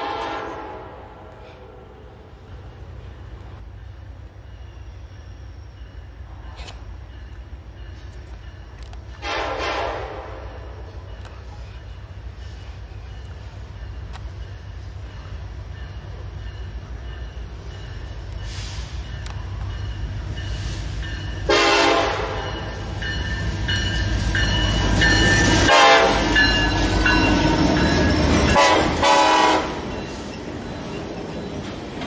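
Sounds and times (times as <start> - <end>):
air horn blasts: 0.0 - 1.3, 9.2 - 10.6, 21.5 - 22.6, 25.7 - 26.3, 28.5 - 29.8
train rumbling: 0.0 - 32.0.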